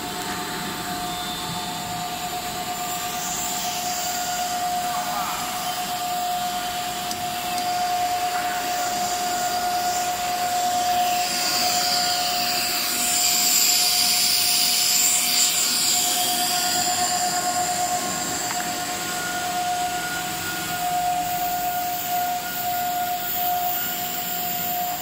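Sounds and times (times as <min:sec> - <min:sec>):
machine whine: 0:00.0 - 0:25.0.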